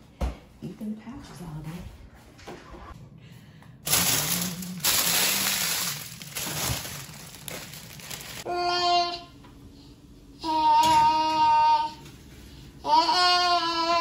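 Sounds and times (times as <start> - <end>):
plastic bag crinkling and rattling: 3.9 - 8.5.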